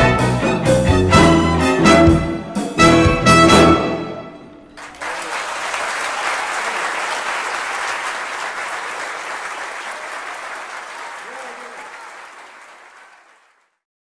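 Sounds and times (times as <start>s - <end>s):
audience applause: 4.8s - 13.8s.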